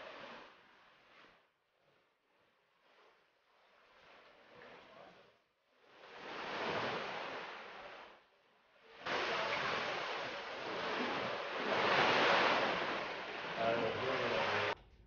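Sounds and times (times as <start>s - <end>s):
wind: 0.0s - 1.2s, 5.9s - 14.8s
sea waves washing against rocks: 5.9s - 8.2s, 8.9s - 14.8s.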